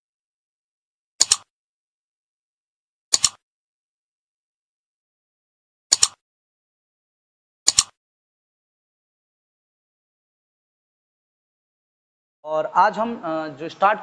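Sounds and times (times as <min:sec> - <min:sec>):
mouse double clicks: 0:01.2 - 0:01.5, 0:03.1 - 0:03.4, 0:05.9 - 0:06.2, 0:07.7 - 0:08.0.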